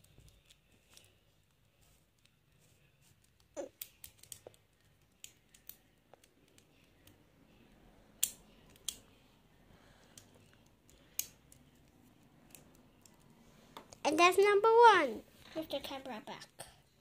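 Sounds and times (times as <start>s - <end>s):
plastic toy clicks and snaps: 3.7s - 7.2s, 8.2s - 9.1s, 10.9s - 11.7s.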